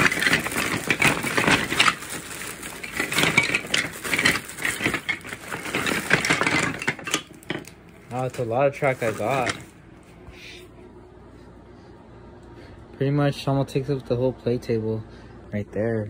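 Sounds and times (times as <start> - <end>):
wooden track pieces clattering: 0.0 - 9.7
plastic bag crinkling: 0.0 - 9.8.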